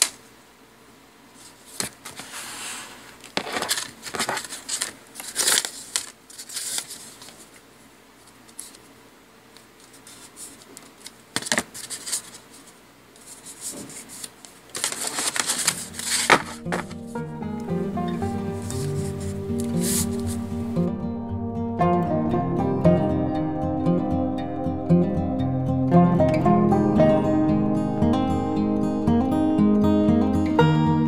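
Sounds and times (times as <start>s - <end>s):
paper tapping and sliding: 1.4s - 7.6s, 9.8s - 17.1s, 18.6s - 20.7s
paper shuffling: 1.4s - 8.9s, 9.7s - 17.2s, 18.2s - 20.8s.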